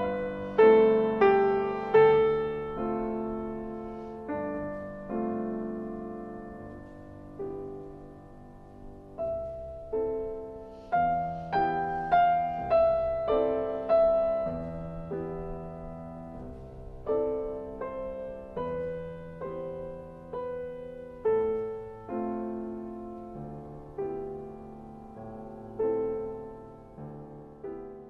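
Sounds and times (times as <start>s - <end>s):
solo piano music: 0.0s - 28.0s.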